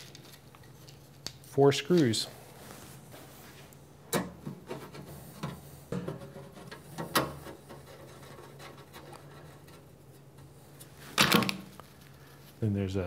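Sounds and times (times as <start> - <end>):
screwdriver scratching and rubbing: 7.4 - 9.9.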